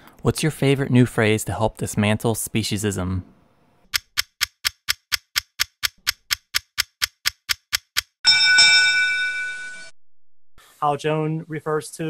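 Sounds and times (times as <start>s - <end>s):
clock ticking: 3.9s - 8.2s
bright bell chime: 8.2s - 9.9s.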